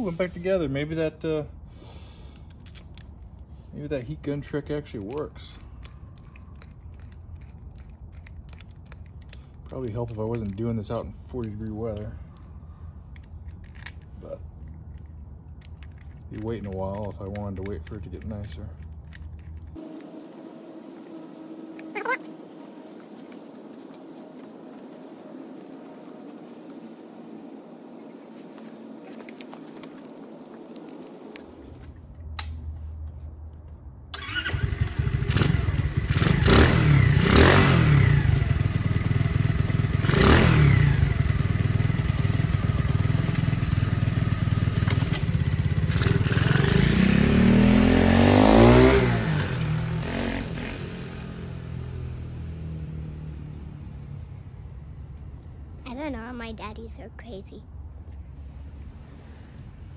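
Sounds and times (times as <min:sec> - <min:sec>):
motorcycle engine revving: 0:34.2 - 0:53.7.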